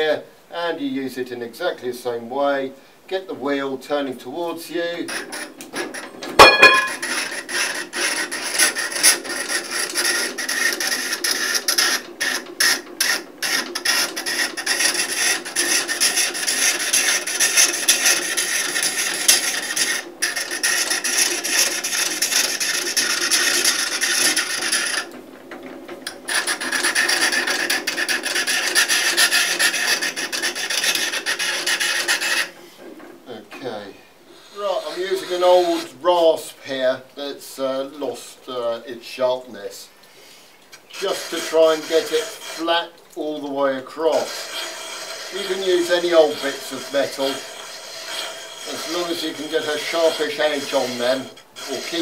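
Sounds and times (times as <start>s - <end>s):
drill bit scraping grindstone: 4.9s - 25.2s, 26.0s - 33.1s, 34.3s - 36.5s, 40.8s - 52.0s.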